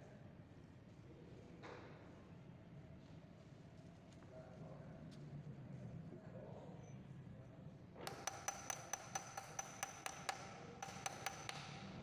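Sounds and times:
hammer tapping steel bar on metal: 0:08.1 - 0:12.0.

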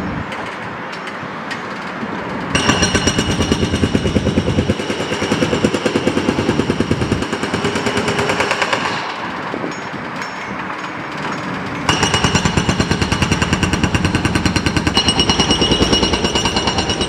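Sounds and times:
diesel engine running: 0:02.6 - 0:08.0
hydraulic breaker hammering concrete: 0:02.6 - 0:10.6, 0:11.4 - 0:17.0.

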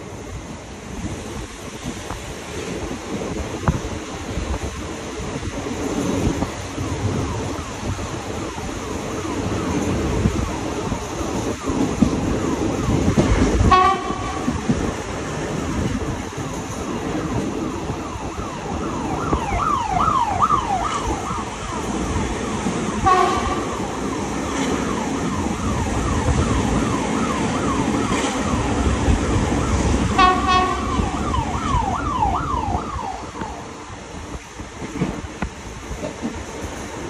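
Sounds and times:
train rumbling: 0:00.0 - 0:37.0
siren blaring blasts: 0:06.4 - 0:16.0, 0:16.9 - 0:34.2
siren yelping: 0:17.2 - 0:33.8.

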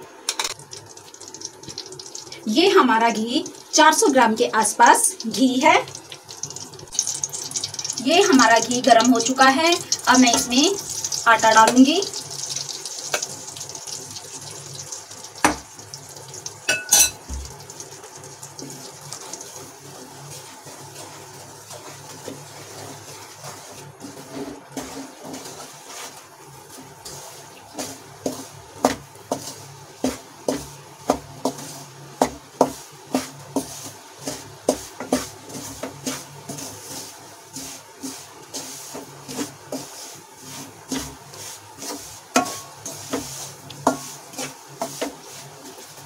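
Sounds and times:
wooden spatula scraping a pan: 0:07.6 - 0:13.6, 0:18.5 - 0:46.0.

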